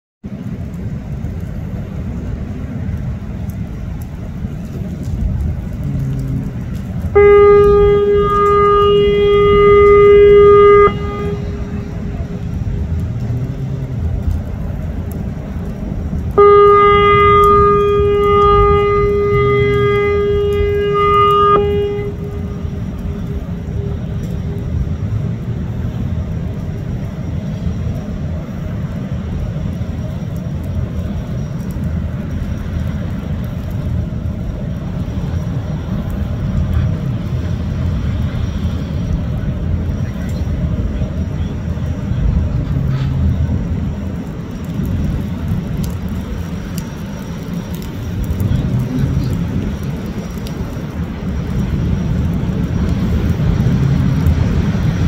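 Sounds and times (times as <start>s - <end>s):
turbine and water jet rumble: 0.2s - 55.0s
ship's horn blast: 5.8s - 12.8s, 16.2s - 25.0s.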